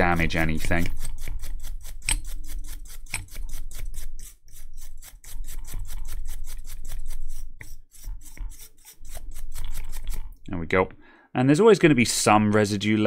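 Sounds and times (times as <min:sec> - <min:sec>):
toothbrush scrubbing circuit board: 0:00.0 - 0:10.4.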